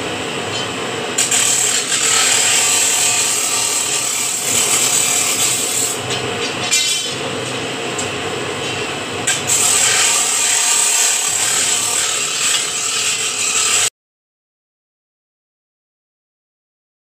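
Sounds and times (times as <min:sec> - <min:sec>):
bending machine grinding: 0:00.5 - 0:07.6, 0:08.6 - 0:13.9.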